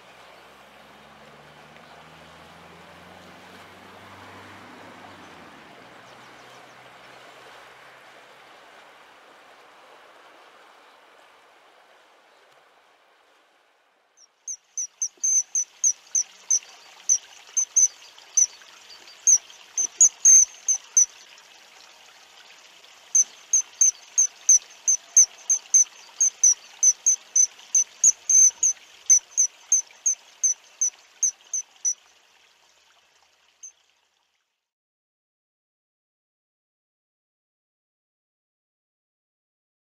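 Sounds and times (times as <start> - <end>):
river rushing: 0.0 - 13.7, 14.5 - 32.0
bird calling high sharp notes: 14.5 - 21.2, 23.2 - 32.0.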